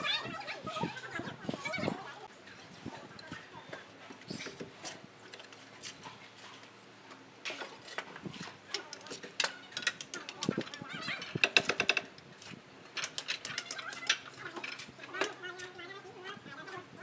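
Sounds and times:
roof tiles clacking: 7.4 - 15.8.

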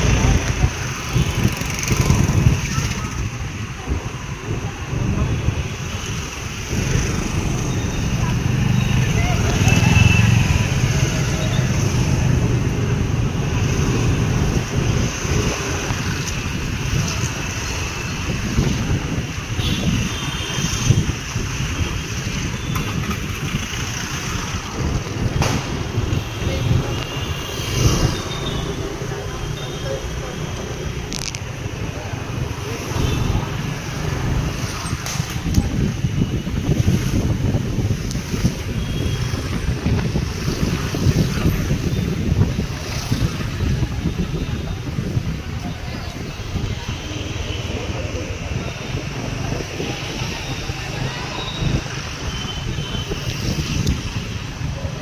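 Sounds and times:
wind buffeting microphone: 0.0 - 29.1, 30.8 - 55.0
cars passing: 0.0 - 55.0
low rumble of street traffic: 0.0 - 55.0
motorcycles passing: 0.0 - 55.0.

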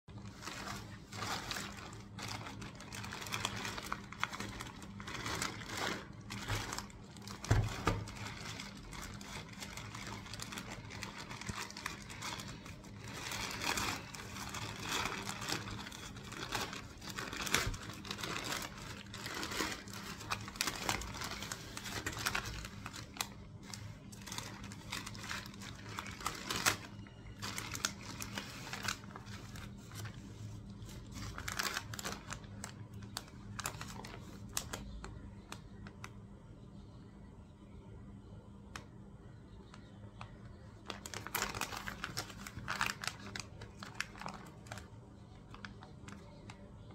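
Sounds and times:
plastic bag crinkling: 0.1 - 35.9, 40.2 - 46.9
plastic packets rustling: 0.1 - 36.1, 39.7 - 46.9.

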